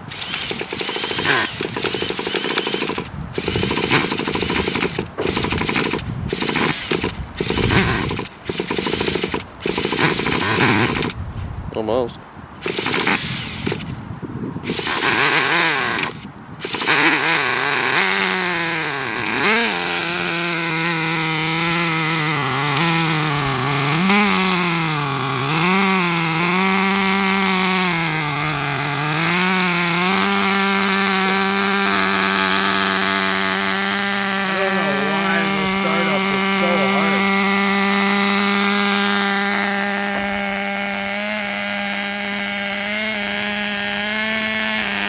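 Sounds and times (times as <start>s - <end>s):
model engine running rough: 0.0s - 11.2s, 12.6s - 13.8s, 14.7s - 45.0s.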